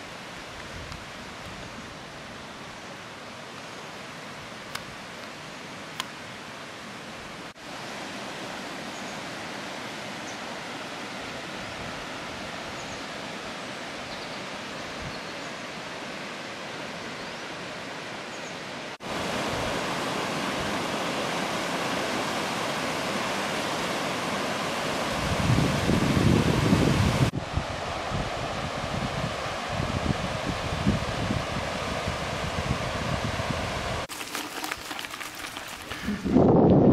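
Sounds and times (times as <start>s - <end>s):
water rushing over rocks: 19.0s - 25.4s, 34.1s - 36.2s
wind rumble on microphone: 25.0s - 34.1s, 35.9s - 36.9s.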